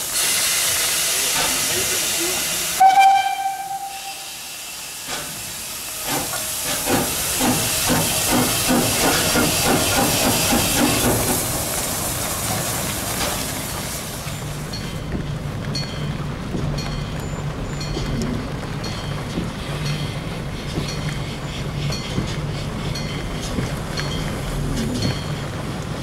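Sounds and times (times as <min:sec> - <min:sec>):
steam hissing: 0:00.0 - 0:15.0
locomotive exhaust chuffs: 0:00.0 - 0:26.0
steam locomotive whistle: 0:02.8 - 0:04.9.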